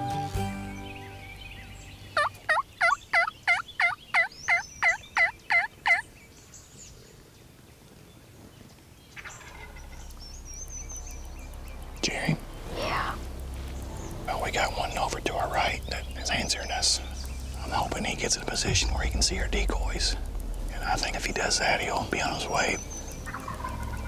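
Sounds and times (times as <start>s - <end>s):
wild turkey yelps: 2.2s - 6.0s, 9.2s - 10.1s, 23.2s - 24.0s.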